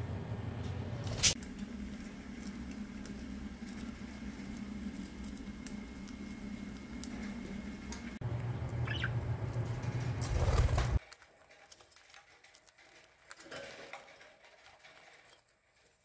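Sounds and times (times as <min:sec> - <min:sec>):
steady low hum: 0:00.0 - 0:11.0
bird chirp: 0:08.7 - 0:09.2.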